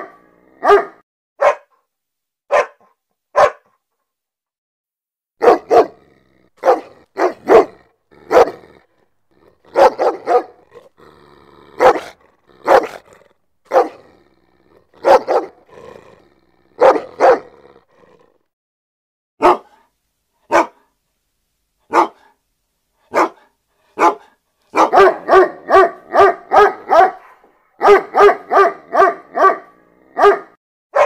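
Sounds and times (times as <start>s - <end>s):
large dog barking: 0.0s - 1.8s, 2.5s - 3.8s, 5.4s - 18.4s, 19.4s - 19.8s, 20.5s - 20.9s, 21.9s - 22.4s, 23.0s - 31.0s
dog growling: 5.4s - 18.5s.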